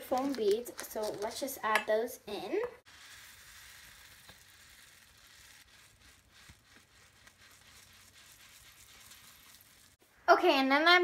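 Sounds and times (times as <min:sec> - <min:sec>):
foam beads pouring into metal bowl: 0:02.9 - 0:10.0.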